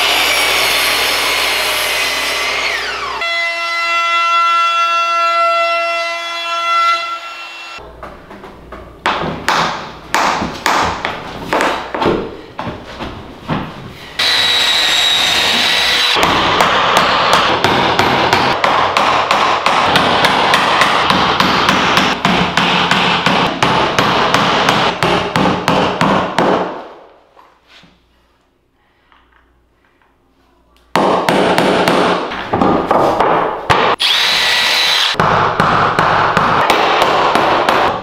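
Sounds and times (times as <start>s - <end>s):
drill whining: 14.2s - 16.2s, 34.0s - 35.2s.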